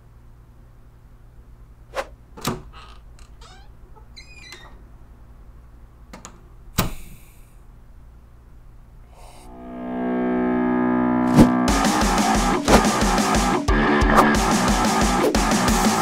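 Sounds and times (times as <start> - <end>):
door creaking: 2.4 - 4.9.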